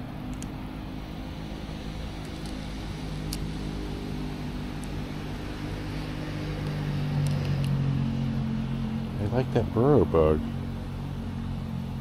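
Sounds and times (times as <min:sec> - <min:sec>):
low engine-like hum: 0:00.0 - 0:12.0.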